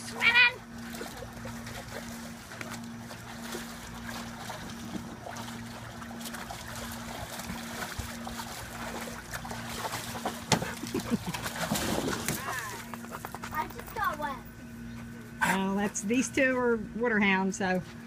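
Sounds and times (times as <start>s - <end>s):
water splashing in a pool: 0.0s - 13.1s
low hum: 0.0s - 18.0s.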